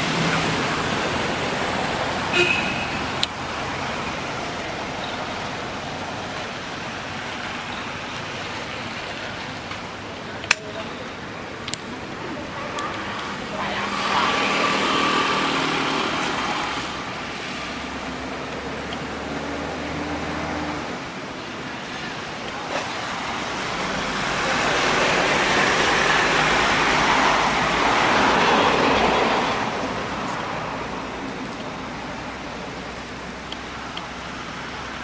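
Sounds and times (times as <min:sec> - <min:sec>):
broad rushing noise: 0:00.0 - 0:35.0.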